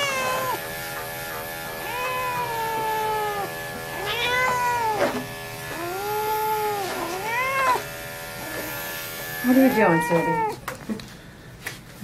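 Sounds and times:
cat yowling: 0:00.0 - 0:00.8, 0:01.7 - 0:07.9, 0:09.5 - 0:10.6.

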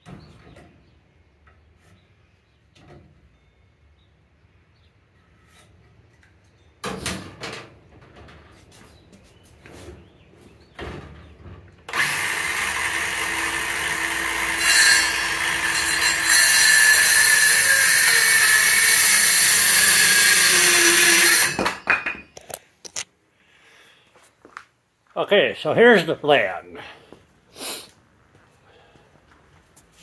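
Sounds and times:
jigsaw cutting wood: 0:11.9 - 0:21.6
knocks of saw and wood set down: 0:21.0 - 0:22.3.

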